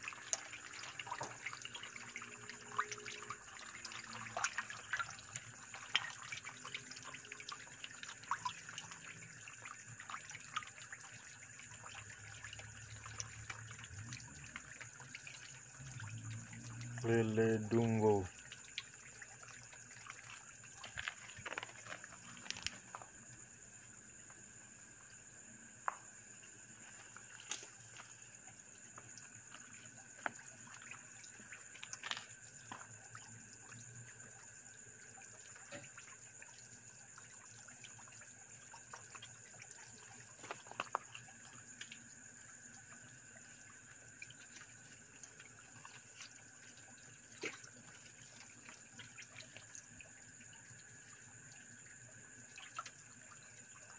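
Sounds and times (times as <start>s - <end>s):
fish splashing at water surface: 0.0s - 23.1s, 26.7s - 53.9s.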